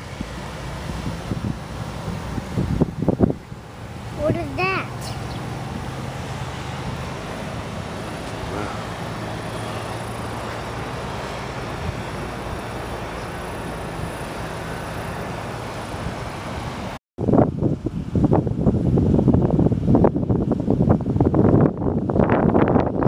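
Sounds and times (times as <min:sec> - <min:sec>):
even hiss: 0:03.7 - 0:16.9.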